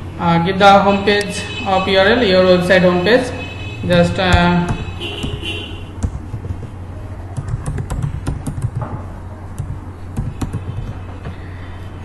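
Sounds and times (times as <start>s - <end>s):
steady low hum: 0.0s - 12.0s
keyboard key clicks: 7.3s - 9.0s.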